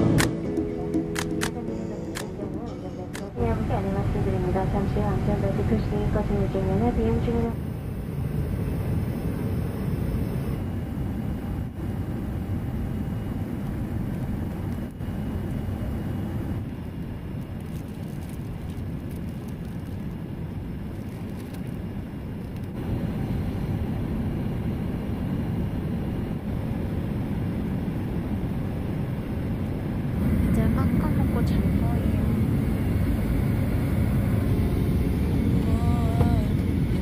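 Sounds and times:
airliner cabin engine rush: 0.0s - 37.0s
plastic wrapper crinkling: 17.4s - 20.2s, 20.9s - 21.8s.

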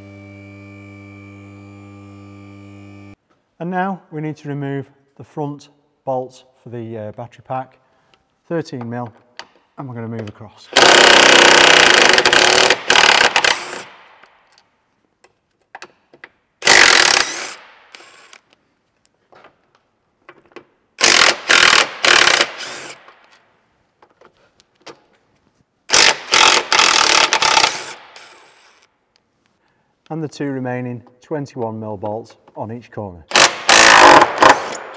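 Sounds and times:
impact wrench hammering: 10.8s - 14.3s, 16.6s - 17.7s, 21.0s - 23.2s, 25.9s - 28.0s, 33.3s - 34.9s.

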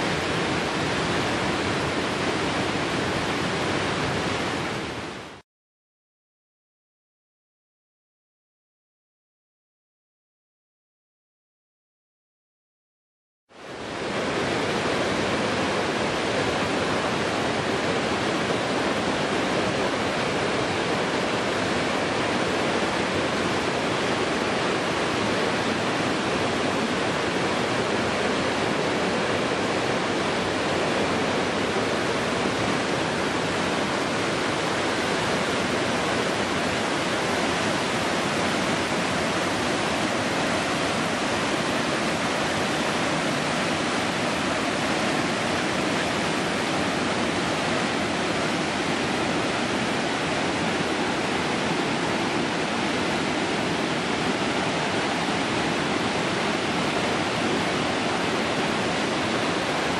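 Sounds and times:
waterfall rushing: 0.0s - 5.4s, 13.6s - 59.9s.

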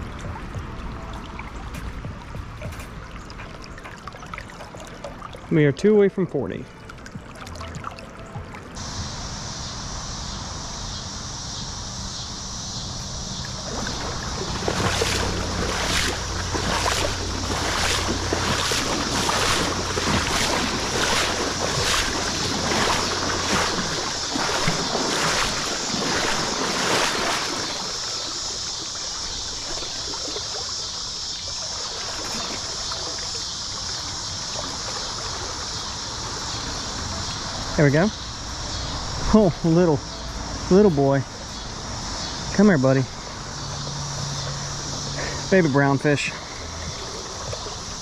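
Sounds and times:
rhythmic swishing splashes: 0.0s - 48.0s
river water running: 0.0s - 48.0s.

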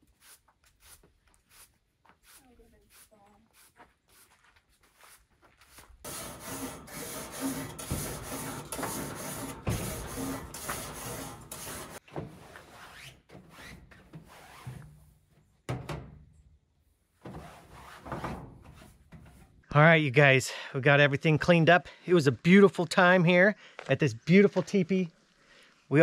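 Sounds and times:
grill brush scraping metal grates: 6.0s - 15.2s
quiet rubbing: 6.1s - 14.8s.

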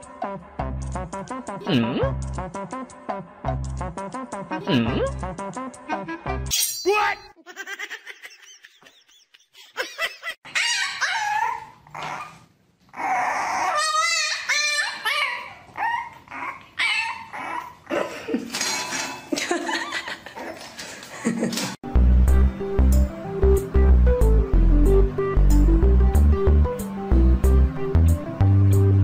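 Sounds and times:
music: 0.0s - 6.5s, 21.8s - 29.0s.

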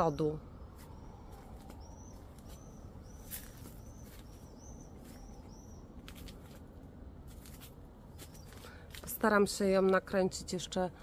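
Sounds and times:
small bird chirping: 0.0s - 6.4s, 8.1s - 8.8s.

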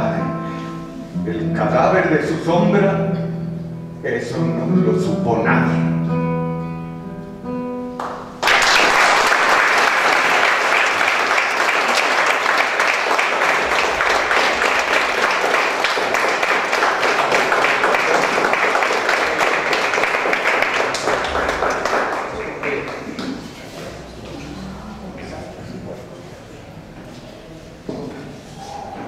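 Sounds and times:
acoustic guitar notes ringing: 0.0s - 8.4s, 21.0s - 27.0s
audience applauding: 8.0s - 25.8s.

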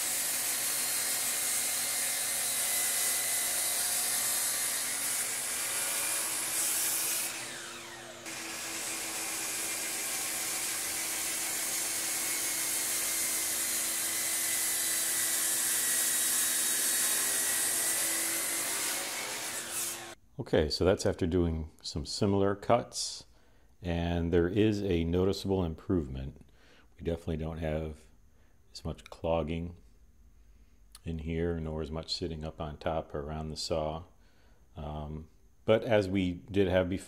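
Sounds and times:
miter saw cutting board: 0.0s - 20.2s.

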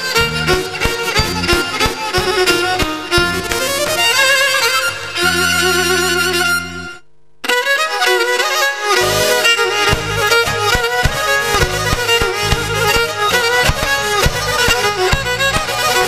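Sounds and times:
bass drum beat: 0.0s - 4.2s, 9.7s - 16.0s
bowed lyra melody: 0.0s - 16.0s
keyboard accompaniment: 0.0s - 16.0s.

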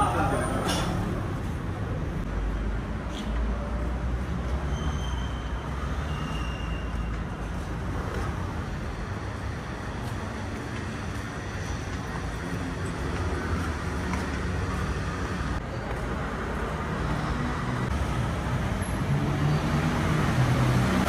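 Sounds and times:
city background rumble: 0.0s - 21.0s.

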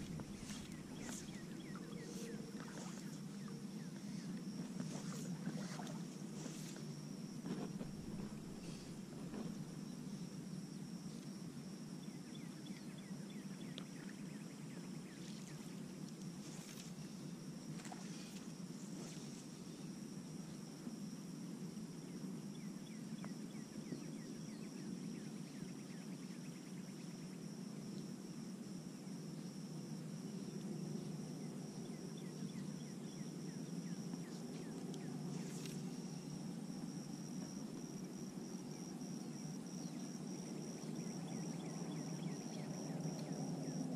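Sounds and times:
wind and water rushing: 0.0s - 1.6s.

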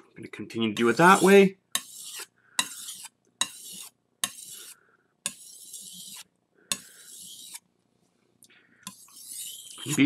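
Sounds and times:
knife scraping on whetstone: 0.8s - 7.6s, 8.8s - 10.0s.

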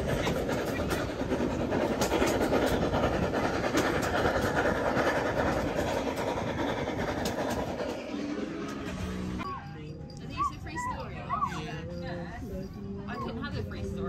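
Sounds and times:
train wheels rumbling and rattling: 0.0s - 11.1s.

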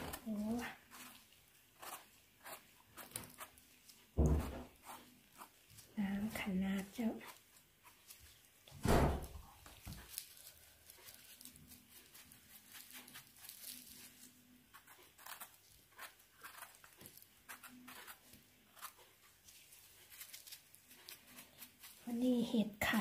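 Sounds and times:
loud low thump: 8.8s - 9.3s
rustling forest floor litter: 9.8s - 14.4s.

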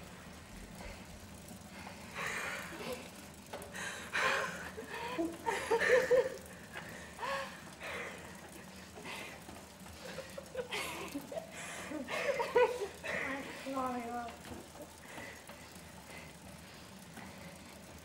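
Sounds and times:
soft breathy laughter: 2.0s - 13.7s.

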